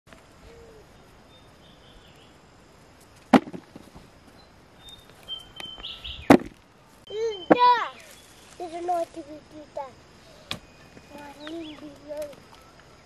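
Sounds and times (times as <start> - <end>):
digging tool thudding into soil: 3.3 - 3.8, 6.3 - 6.6.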